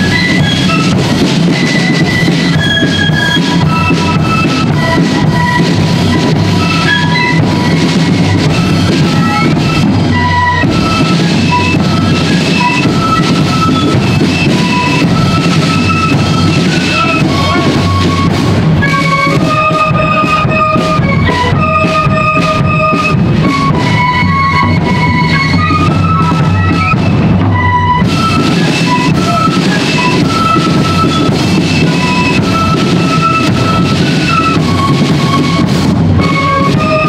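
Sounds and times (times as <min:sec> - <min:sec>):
flutes playing melody in unison: 0:00.0 - 0:37.0
steady drum beat: 0:00.0 - 0:37.0.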